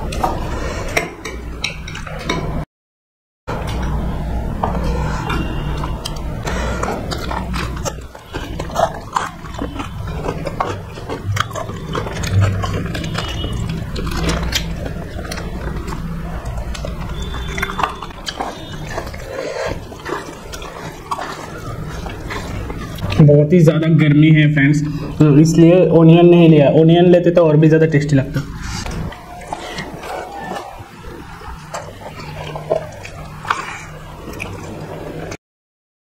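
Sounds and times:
chewing and wet smacking: 0:00.0 - 0:02.5, 0:03.5 - 0:23.6, 0:28.0 - 0:35.4
steady low hum: 0:03.5 - 0:35.4.

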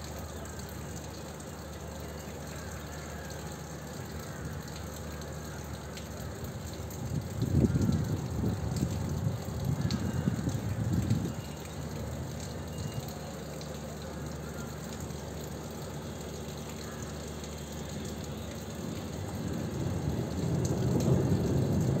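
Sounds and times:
thunder rolling: 0:19.4 - 0:22.0.

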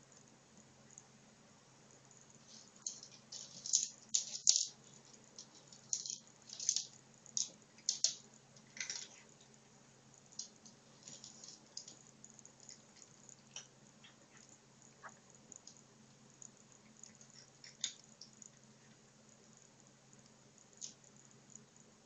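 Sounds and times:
kibble rattling in plastic ball: 0:02.5 - 0:09.3.

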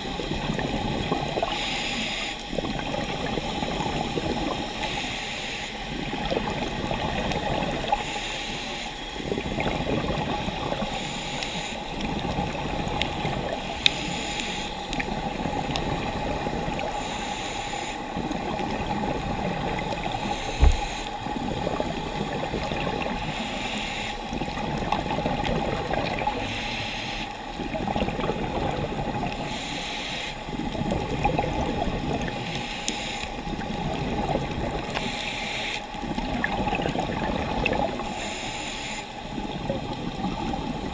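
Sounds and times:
underwater bubbling: 0:00.0 - 0:40.9
diver breathing through regulator: 0:10.8 - 0:11.9, 0:13.6 - 0:14.9, 0:16.8 - 0:18.1, 0:20.1 - 0:21.4, 0:26.3 - 0:27.4, 0:34.9 - 0:36.0, 0:38.0 - 0:39.2
short low thud: 0:20.6 - 0:21.0.

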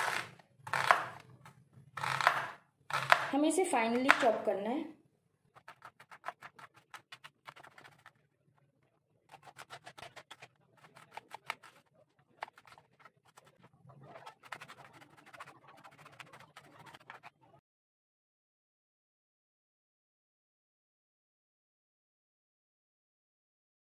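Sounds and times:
knife chopping on wooden board: 0:00.0 - 0:01.2, 0:02.0 - 0:04.4, 0:05.6 - 0:08.1, 0:09.3 - 0:11.8.

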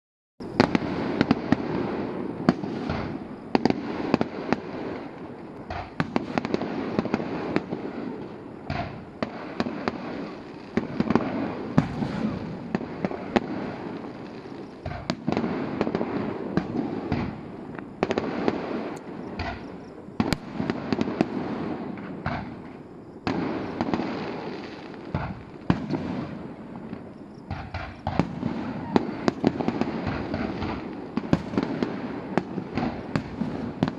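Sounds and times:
fireworks crackling and banging: 0:00.4 - 0:33.9.

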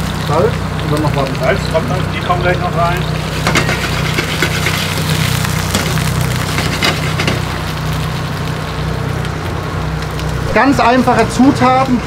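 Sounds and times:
squid and garlic sizzling in a pan: 0:00.0 - 0:10.6
low engine drone: 0:00.0 - 0:12.0.

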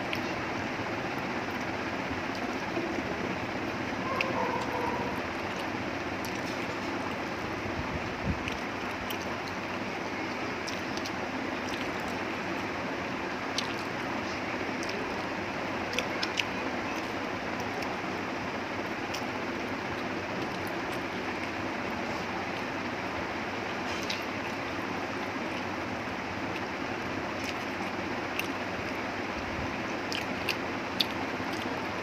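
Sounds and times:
chewing and biting: 0:08.4 - 0:09.6, 0:10.6 - 0:12.3, 0:27.3 - 0:29.0, 0:29.9 - 0:31.9.

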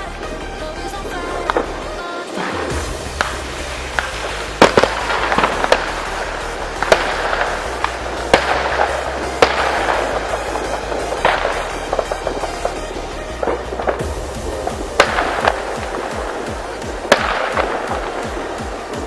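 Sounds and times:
fireworks crackling: 0:00.0 - 0:19.0
music with steady bass: 0:00.0 - 0:19.0
fireworks bangs: 0:01.0 - 0:19.0.

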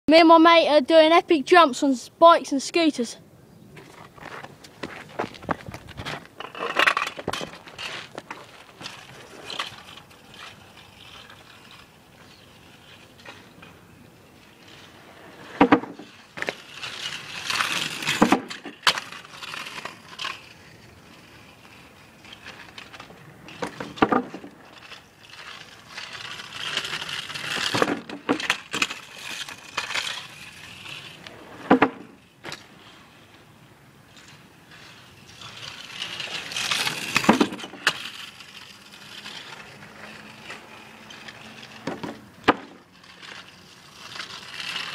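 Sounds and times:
wheels rolling over rough tarmac: 0:03.7 - 0:44.9
wheels knocking on wooden ramp: 0:15.5 - 0:16.1, 0:23.6 - 0:24.6, 0:31.6 - 0:32.2.

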